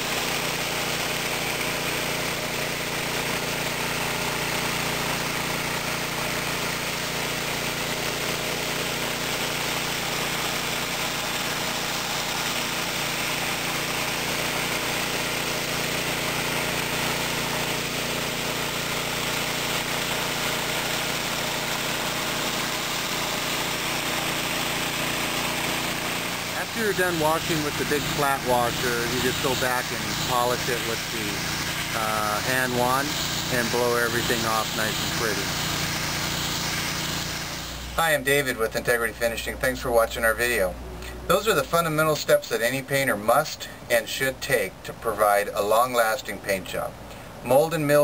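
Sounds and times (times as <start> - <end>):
water spraying onto concrete: 0.0 - 38.2
pressure washer engine running: 0.0 - 48.0.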